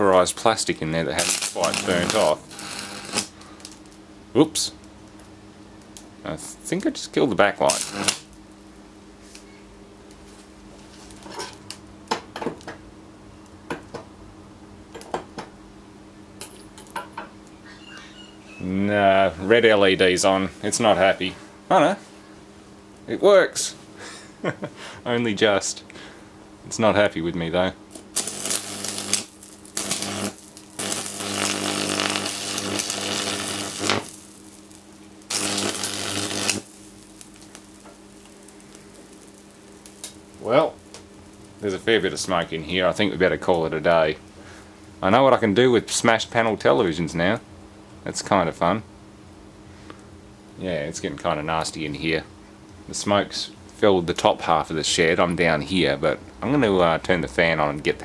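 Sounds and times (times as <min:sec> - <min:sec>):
high-voltage arc: 0:00.0 - 0:04.0, 0:06.3 - 0:08.6, 0:27.6 - 0:44.3
low mains hum: 0:00.0 - 0:58.0.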